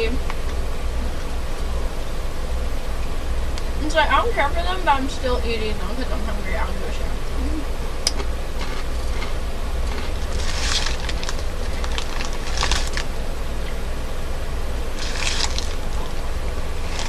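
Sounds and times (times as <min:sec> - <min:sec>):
steady low hum: 0:00.0 - 0:17.0
chips being chewed: 0:08.0 - 0:13.1, 0:15.0 - 0:16.1, 0:16.7 - 0:17.0.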